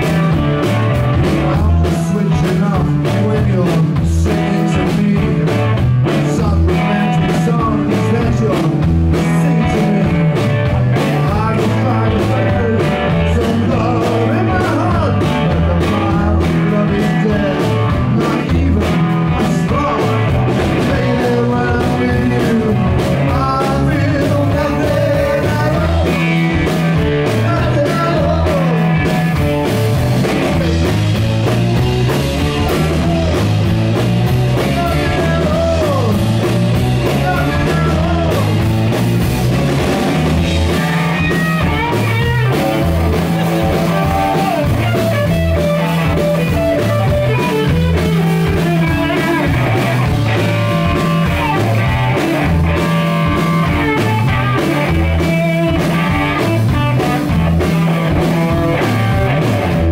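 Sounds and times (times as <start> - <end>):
bass line: 0.0 - 59.9
drums: 0.0 - 59.9
electric guitar: 0.0 - 59.9
male vocal singing: 1.4 - 26.3, 27.3 - 29.0, 34.6 - 36.3, 37.0 - 38.6.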